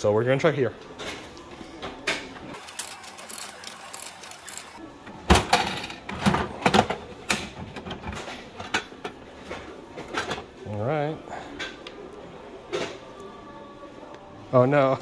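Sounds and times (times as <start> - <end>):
coins dropping into machine: 2.6 - 4.8.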